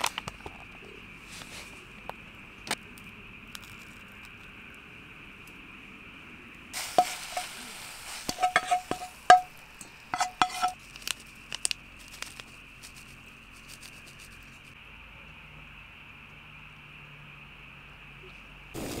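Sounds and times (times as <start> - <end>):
utensils clinking against dishes: 8.3 - 10.8.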